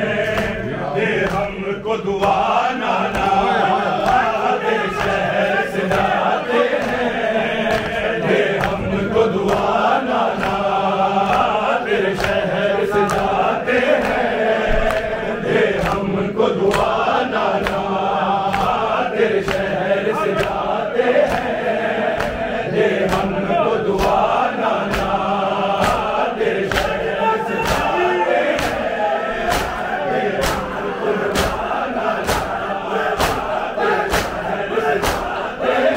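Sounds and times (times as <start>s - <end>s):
crowd of men chanting: 0.0s - 35.9s
hands striking chests: 27.6s - 29.8s, 30.4s - 32.6s, 33.2s - 34.4s.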